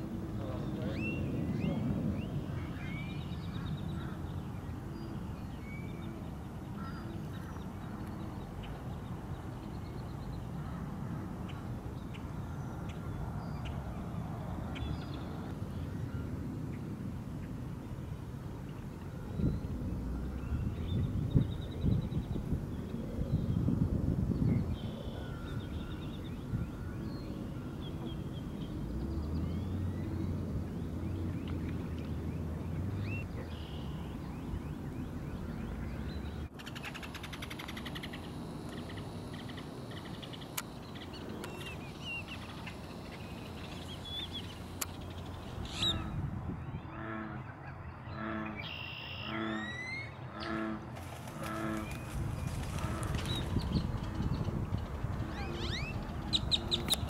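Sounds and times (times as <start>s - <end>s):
evenly spaced bird calls: 24.7s - 57.0s
wading birds chirping and squawking: 32.8s - 57.0s.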